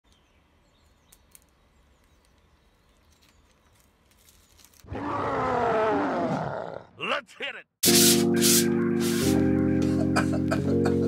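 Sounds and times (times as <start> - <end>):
small clicks: 1.0 - 4.9
masking film being peeled: 2.2 - 4.9
loud roar with falling pitch: 4.9 - 7.0.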